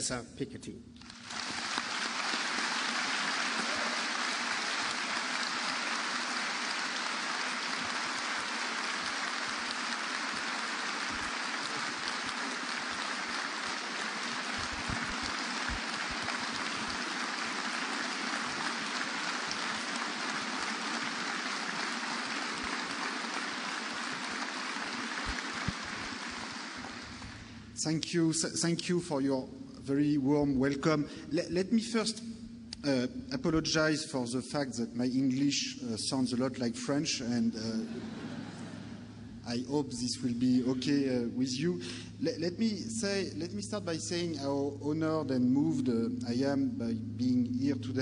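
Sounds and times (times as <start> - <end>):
audience applauding: 1.0 - 27.7.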